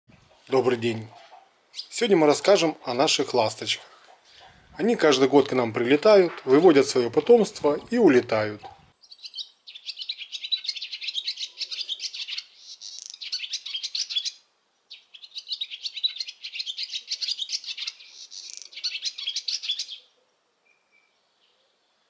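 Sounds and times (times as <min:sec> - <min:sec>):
swallow twittering song: 0:09.0 - 0:20.1.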